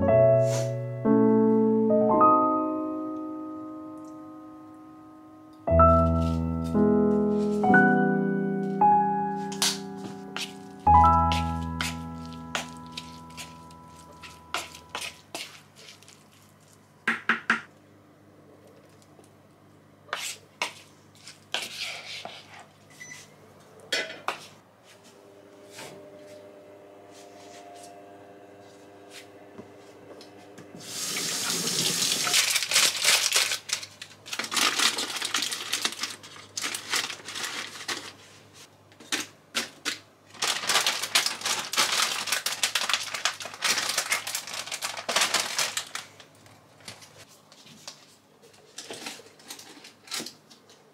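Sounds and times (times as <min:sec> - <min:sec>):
water running: 0:30.8 - 0:32.6.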